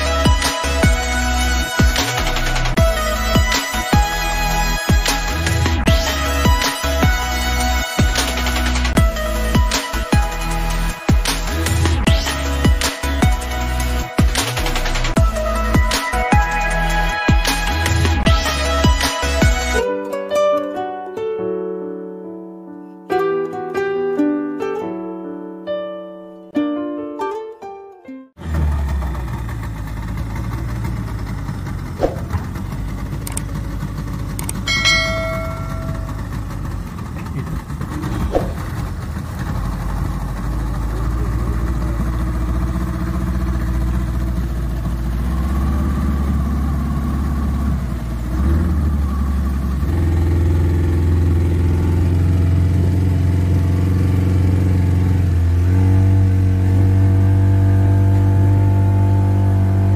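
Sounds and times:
outboard motor running: 28.4 - 59.9
clicks: 33.2 - 33.5, 34.3 - 34.6
brief high tone: 34.7 - 36.6.

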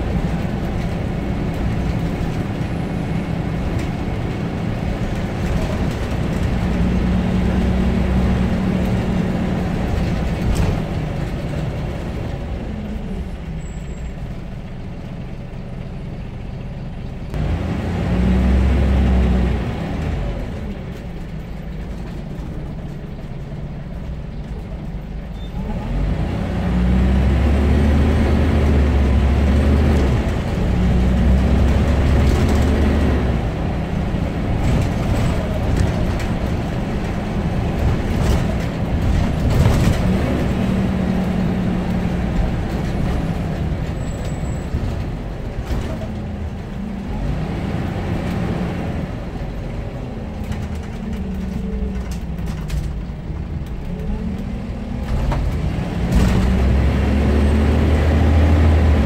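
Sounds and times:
bus engine from inside: 0.0 - 59.0.

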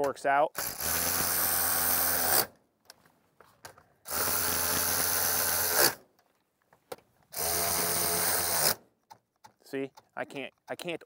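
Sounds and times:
cordless electric ratchet running: 0.6 - 2.5, 4.1 - 6.0, 7.4 - 8.8.

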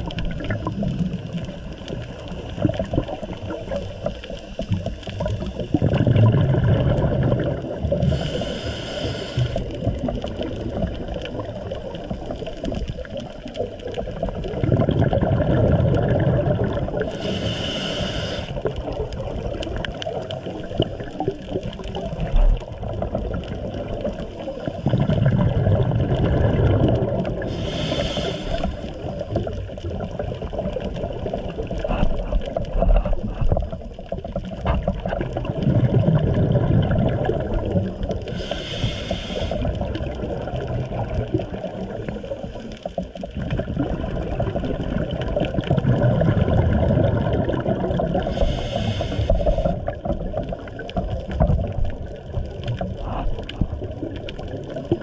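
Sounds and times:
bubbling exhaled air: 0.0 - 55.0
regulator inhale hiss: 8.0 - 9.9, 17.0 - 18.8, 27.4 - 29.5, 38.2 - 40.0, 48.1 - 50.0.

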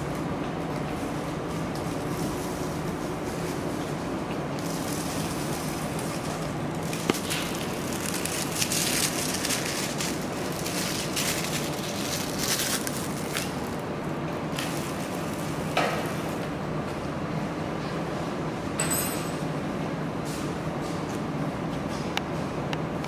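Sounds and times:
low machine hum: 0.0 - 23.0
plastic film crinkling: 4.6 - 13.8, 14.5 - 16.2.

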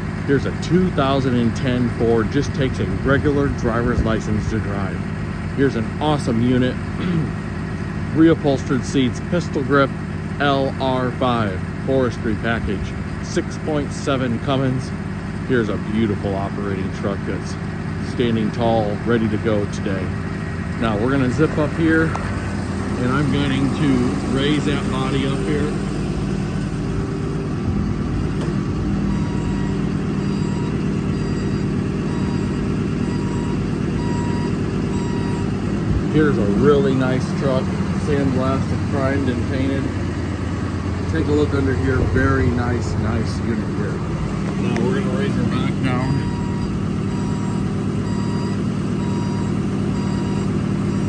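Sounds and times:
diesel truck engine running: 0.0 - 51.0
hydraulics lowering dump body: 0.0 - 51.0
faint short beep: 29.1 - 35.5, 45.9 - 50.5.

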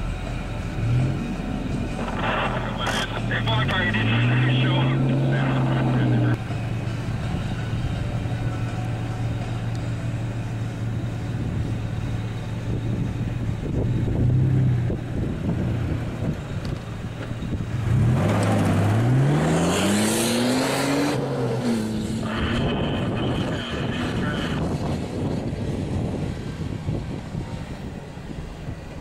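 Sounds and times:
engine idling and revving: 0.0 - 29.0.

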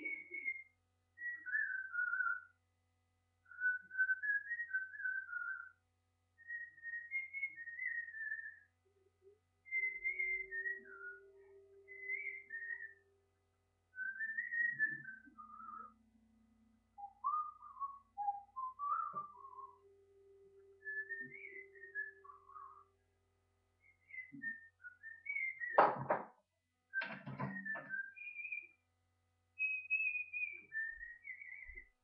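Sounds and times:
man whistling a tune: 0.0 - 2.5, 9.7 - 13.0, 14.0 - 16.0, 17.0 - 19.9, 20.8 - 22.8, 27.0 - 28.8, 29.6 - 31.8.

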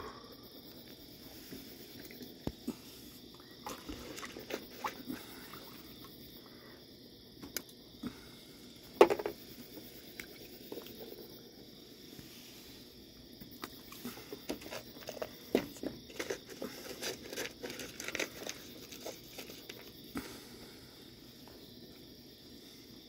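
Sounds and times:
raccoons crunching crackers: 0.8 - 5.7, 13.5 - 20.5
taps and scrapes on wooden deck: 9.0 - 9.9, 13.5 - 19.9.

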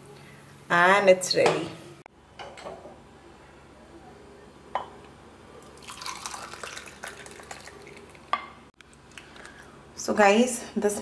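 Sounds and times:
milk pouring into glass mug: 5.6 - 8.3.

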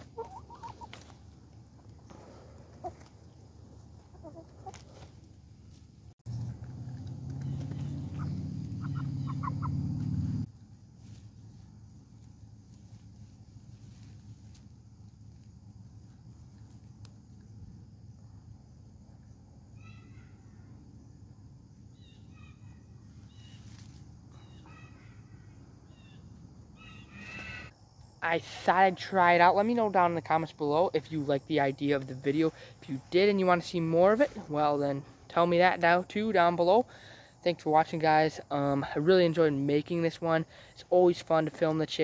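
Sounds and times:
chickens clucking softly: 0.0 - 1.2, 2.6 - 5.2
faint short bird calls: 22.0 - 27.8.

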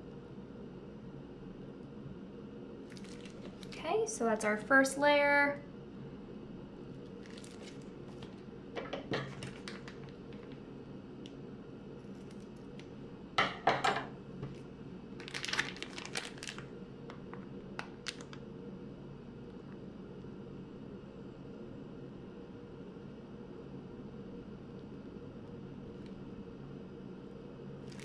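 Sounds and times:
plastic bag crinkling: 2.9 - 3.9, 7.0 - 8.4, 9.2 - 10.7, 12.0 - 12.9, 14.5 - 18.4
scissors snipping plastic bag: 15.2 - 16.6.

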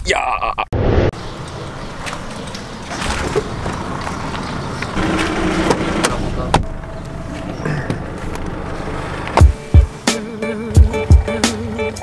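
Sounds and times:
trailer clicks and knocks: 1.2 - 9.9
tyres rumbling over cobblestones: 1.2 - 9.9.

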